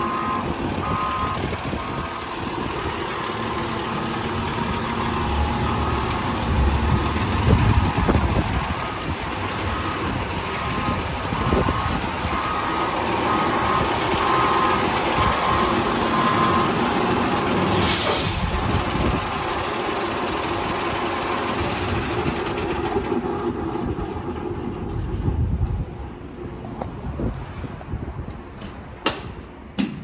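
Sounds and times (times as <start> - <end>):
diesel engine running: 0.0 - 29.8
reverse beeper beeping: 9.7 - 16.8
air brakes hiss: 17.7 - 18.6.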